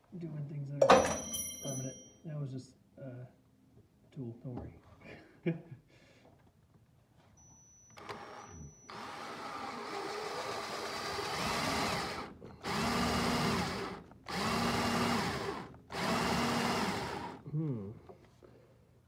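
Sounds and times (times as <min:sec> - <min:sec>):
cordless drill boring: 0:08.0 - 0:17.4.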